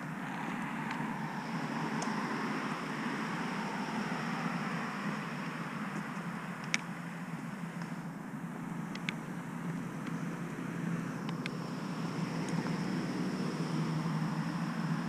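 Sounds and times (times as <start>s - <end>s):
constant low hum: 0.0s - 15.0s
wheels rolling on pavement: 0.0s - 15.0s
faint ticks: 5.9s - 8.0s, 8.9s - 10.3s, 11.2s - 11.6s.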